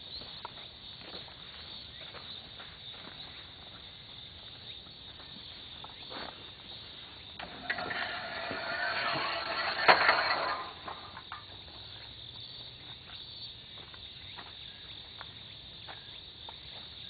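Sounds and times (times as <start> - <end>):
insects chorus: 0.0 - 17.0
metal pipe rail scraping: 7.4 - 11.4
metal clank: 7.4 - 11.5.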